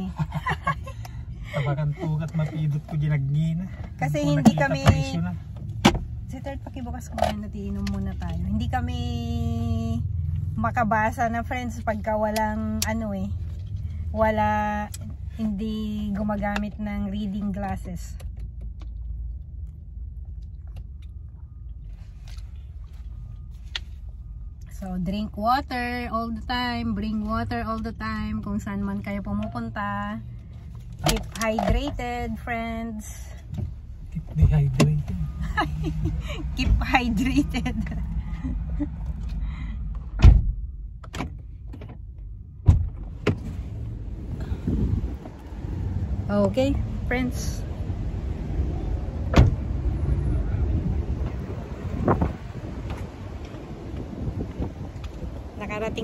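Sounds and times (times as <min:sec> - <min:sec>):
low rumble in car cabin: 0:00.0 - 0:56.0
car door thudding shut: 0:40.2 - 0:40.6.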